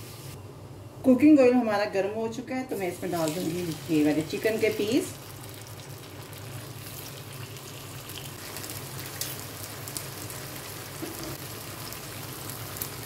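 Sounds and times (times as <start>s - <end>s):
chicken sizzling in hot oil: 2.7s - 13.0s
oil crackles and pops: 5.2s - 13.0s.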